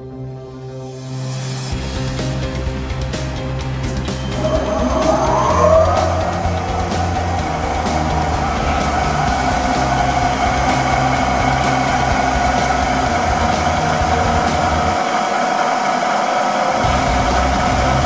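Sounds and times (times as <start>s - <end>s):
low mechanical rumble: 3.9s - 15.0s
lathe whine: 4.0s - 18.0s.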